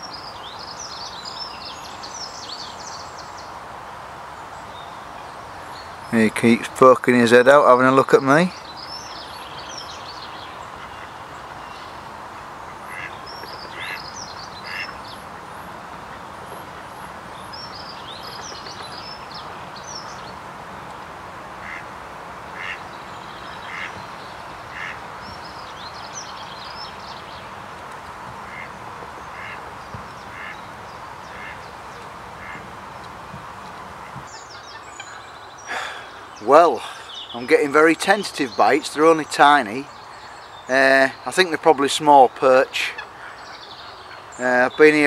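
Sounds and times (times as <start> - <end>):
songbirds chirping: 0.0 - 45.0
steady background hiss: 0.0 - 45.0
ducks quacking: 10.7 - 11.2, 12.4 - 17.2, 21.6 - 21.9, 22.5 - 22.9, 23.5 - 24.0, 24.7 - 25.0, 28.4 - 31.7, 32.3 - 32.7, 42.7 - 45.0.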